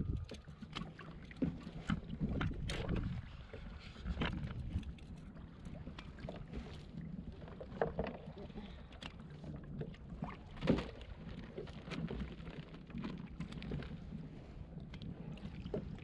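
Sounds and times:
wind rumbling on microphone: 0:00.0 - 0:00.8, 0:01.8 - 0:06.0
water sloshing against hull: 0:00.0 - 0:16.0.

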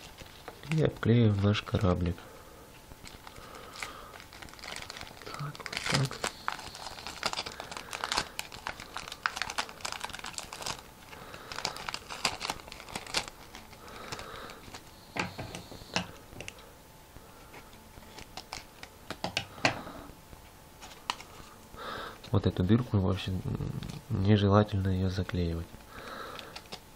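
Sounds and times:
adhesive tape crackling: 0:03.0 - 0:15.6, 0:17.6 - 0:19.3, 0:25.8 - 0:26.9
paper rustling: 0:03.0 - 0:15.6.

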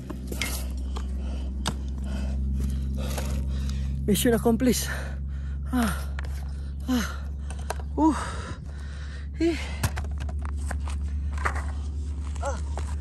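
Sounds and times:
man gasping for breath: 0:04.9 - 0:10.0.

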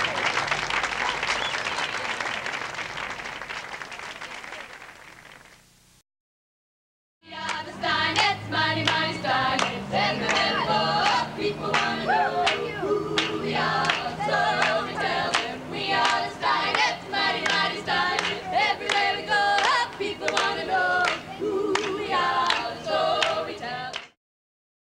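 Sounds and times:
women singing a cappella: 0:07.2 - 0:24.2.

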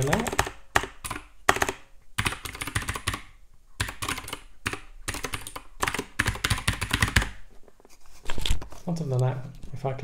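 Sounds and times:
typing on computer keyboard: 0:00.0 - 0:07.4.

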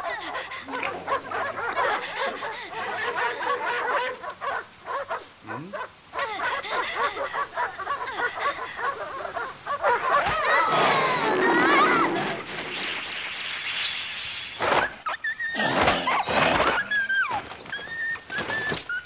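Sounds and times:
dogs barking: 0:00.2 - 0:12.3.

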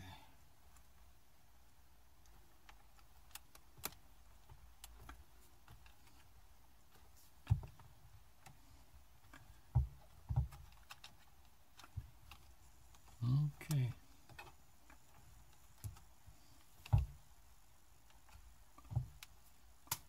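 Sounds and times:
dull knocks: 0:09.6 - 0:10.6.

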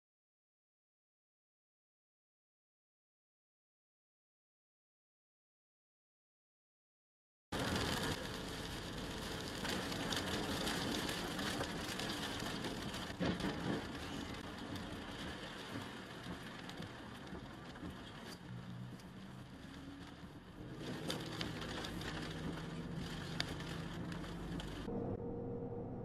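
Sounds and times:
rain and tyres on wet road: 0:07.6 - 0:25.2.

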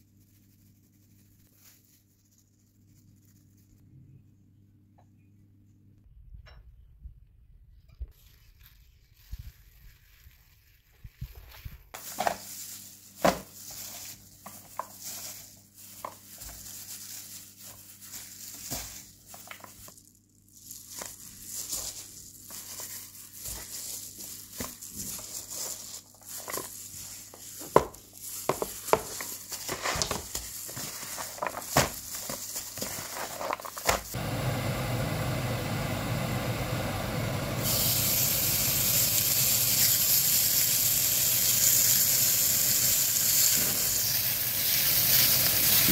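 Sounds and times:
gloved hands rustling: 0:00.0 - 0:03.8, 0:08.1 - 0:34.2
meat sizzling on grill pan: 0:37.4 - 0:45.9.

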